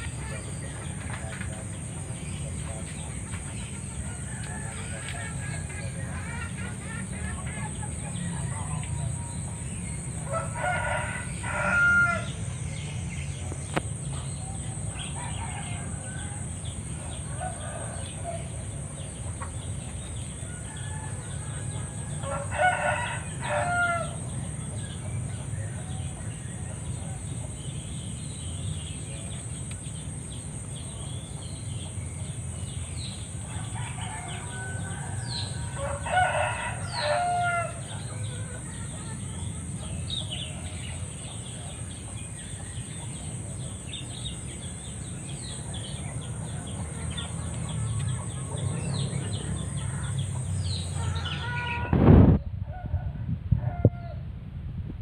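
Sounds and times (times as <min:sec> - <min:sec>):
rooster crowing: 0:09.4 - 0:12.4, 0:15.0 - 0:18.7, 0:20.4 - 0:24.9, 0:33.0 - 0:38.8
low rumble: 0:48.6 - 0:55.0.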